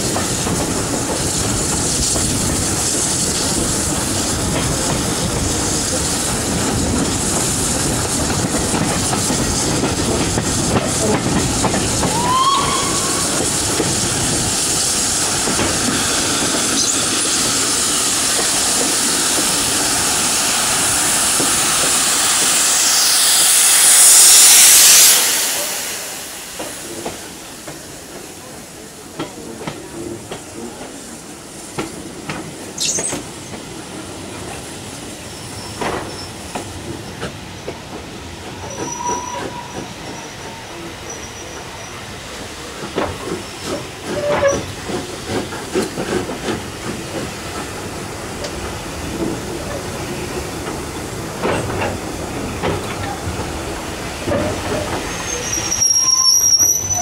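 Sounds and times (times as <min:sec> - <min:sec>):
rail joint clicks: 0:00.0 - 0:20.3, 0:26.4 - 0:57.0
rushing air: 0:00.0 - 0:28.8
train wheels rumbling: 0:00.0 - 0:57.0
high-pitched wheel squeal: 0:38.6 - 0:41.9, 0:55.1 - 0:57.0.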